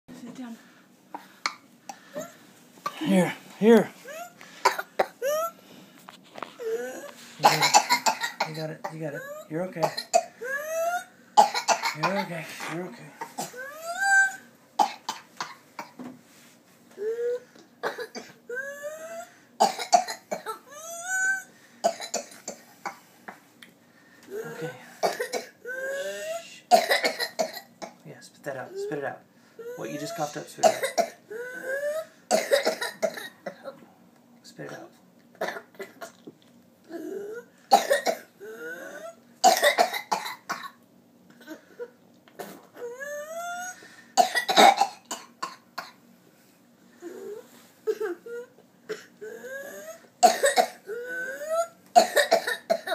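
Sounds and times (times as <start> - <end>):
girl coughing: 2.8 - 3.3, 4.1 - 5.5, 6.6 - 12.4, 13.2 - 16.0, 17.8 - 18.9, 19.6 - 22.6, 24.3 - 28.0, 29.7 - 33.8, 35.4 - 36.2, 37.3 - 40.8, 44.2 - 46.0, 50.2 - 52.9.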